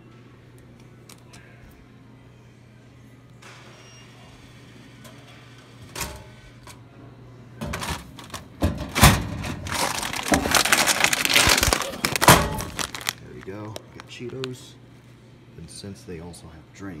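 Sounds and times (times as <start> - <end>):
snack bag crinkling: 9.6 - 14.6.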